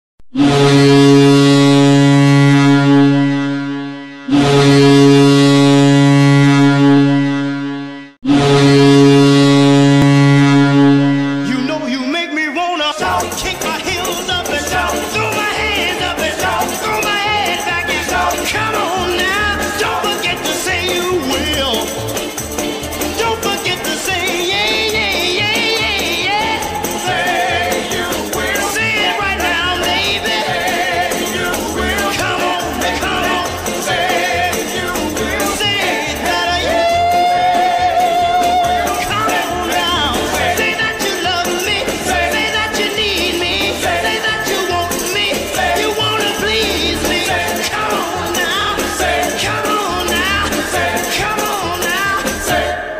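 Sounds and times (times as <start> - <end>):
goal horn blasts: 0.3 - 12.1
goal horn: 0.3 - 12.2, 16.1 - 21.9, 23.2 - 42.9
music: 12.8 - 52.9.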